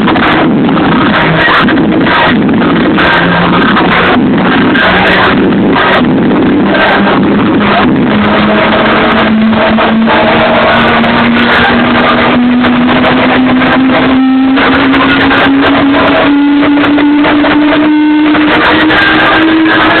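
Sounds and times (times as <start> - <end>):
loud electronic dance music: 0.0 - 20.0
synth tone rising in pitch: 0.0 - 20.0.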